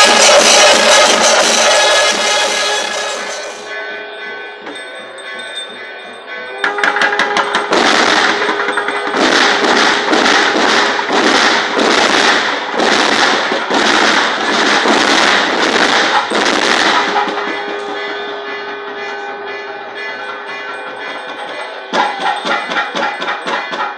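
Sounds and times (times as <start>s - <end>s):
percussion ensemble drumming: 0.0s - 3.7s, 6.6s - 18.1s, 20.9s - 23.9s
held pipe tone: 0.0s - 9.5s, 16.2s - 23.9s
cymbals crashing: 0.0s - 23.8s.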